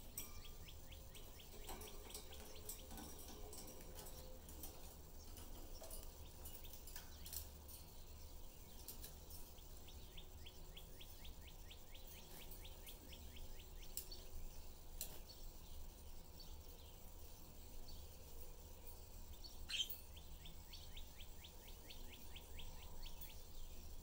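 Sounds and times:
low steady hum: 0.0s - 24.0s
budgerigar chirping: 19.7s - 20.0s.

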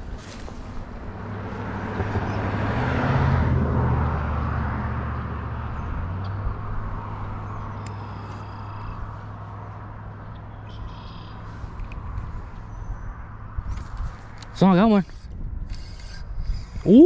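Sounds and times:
car passing: 0.2s - 13.6s.

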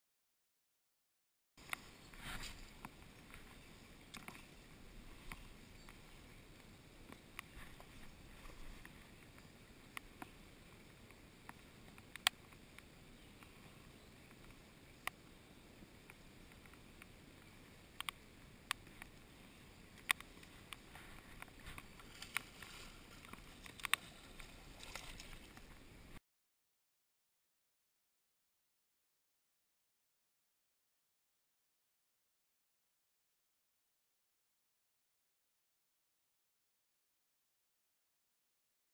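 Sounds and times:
faint steady hiss: 1.6s - 26.2s
sharp ticks on camera housing: 11.0s - 12.9s, 17.9s - 19.2s, 20.0s - 22.4s, 23.2s - 24.0s.

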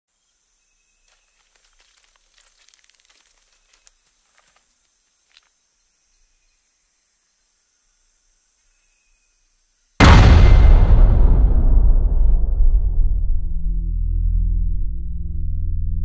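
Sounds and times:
high insect drone: 0.1s - 10.0s
dry rustles and crackles: 1.0s - 5.6s.

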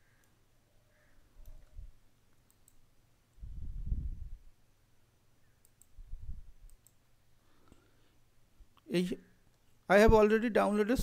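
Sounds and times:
computer mouse clicks: 0.1s - 0.4s, 1.4s - 2.9s, 5.6s - 6.0s, 6.6s - 7.0s.

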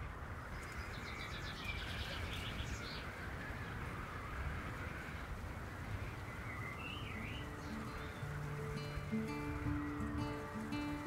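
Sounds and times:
steady rushing noise: 0.0s - 11.0s
bird calling high notes: 6.7s - 11.0s.

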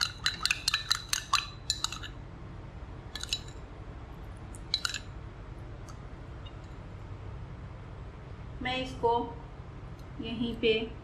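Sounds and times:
metal spoon clinking in glass bowl: 0.0s - 2.2s, 3.2s - 3.6s, 4.7s - 5.1s.

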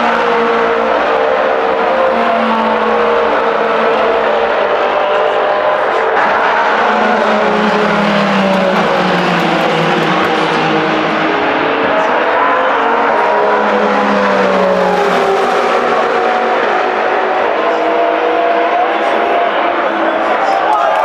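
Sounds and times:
racing car engines passing: 0.0s - 20.6s.

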